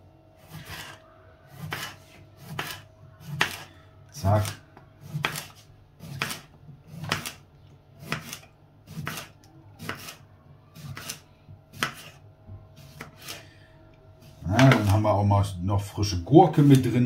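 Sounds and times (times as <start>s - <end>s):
knife slicing cucumber: 0.4s - 7.4s, 8.0s - 10.2s, 10.8s - 12.2s, 12.8s - 13.4s.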